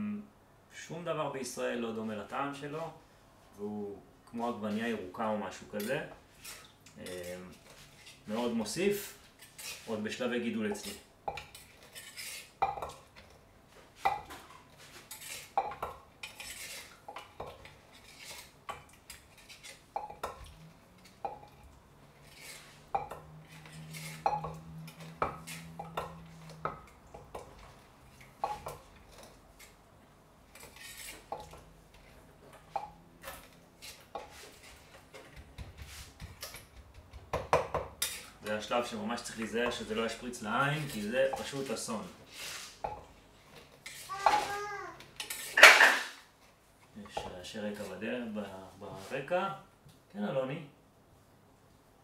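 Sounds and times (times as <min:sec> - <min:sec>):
pestle pounding in mortar: 0:35.3 - 0:38.0
utensils clattering: 0:43.8 - 0:46.2.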